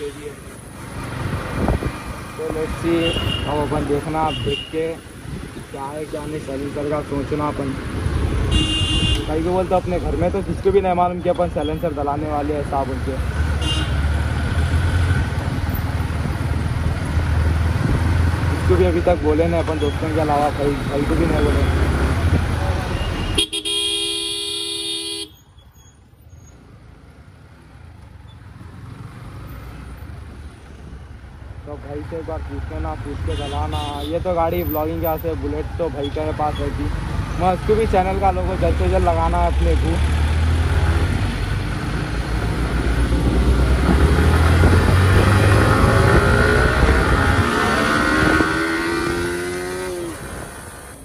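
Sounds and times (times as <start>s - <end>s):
traffic engine and road noise: 0.0s - 51.0s
wind rushing over microphone: 1.2s - 2.3s, 5.2s - 5.8s, 15.1s - 18.6s, 22.0s - 22.9s, 42.6s - 51.0s
vehicle horn honk: 8.5s - 9.3s, 13.6s - 14.0s, 23.0s - 25.4s, 33.3s - 34.1s.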